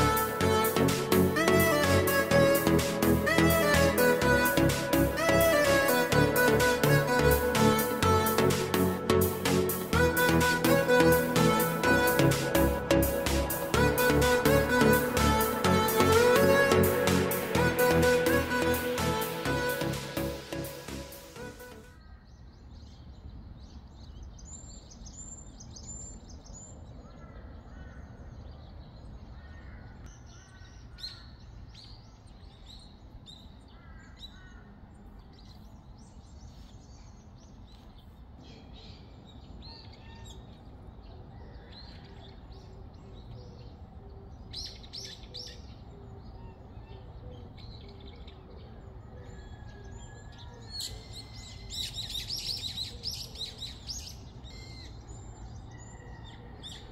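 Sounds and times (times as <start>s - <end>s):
low outdoor background hum: 23.6s - 56.9s.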